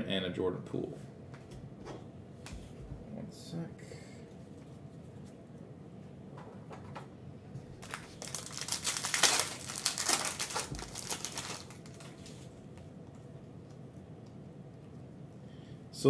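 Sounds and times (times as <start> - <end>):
foil wrapper crinkling: 7.8 - 12.5.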